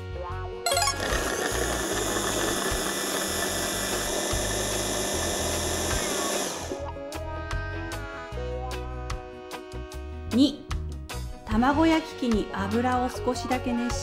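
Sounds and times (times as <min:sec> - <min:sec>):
background music: 0:00.7 - 0:01.5
food processor motor running: 0:01.0 - 0:06.8.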